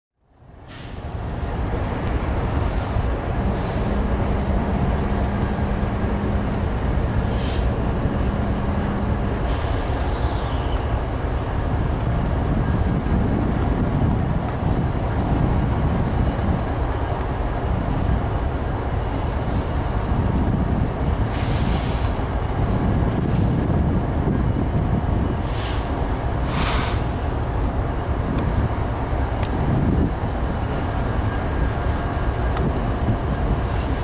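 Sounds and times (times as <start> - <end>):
locomotive engine rumbling: 0.3 - 34.0
brief hiss: 26.5 - 27.1.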